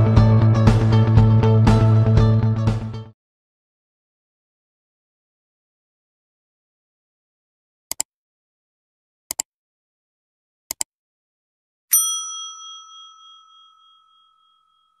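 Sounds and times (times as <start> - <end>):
mouse-style clicks: 9.3 - 9.5, 10.7 - 10.9
bright bell ding: 11.9 - 15.0.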